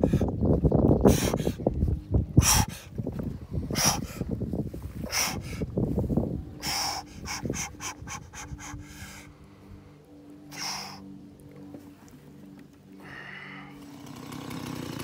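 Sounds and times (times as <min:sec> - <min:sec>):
man breathing hard: 0:00.0 - 0:00.4, 0:01.0 - 0:01.7, 0:02.4 - 0:11.2, 0:12.9 - 0:13.9.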